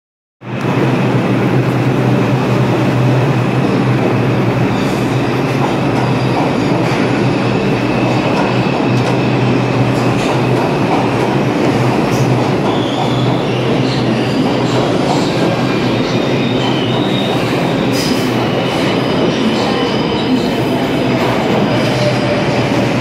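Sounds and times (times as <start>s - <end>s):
subway train wheels rumbling: 0.4s - 23.0s.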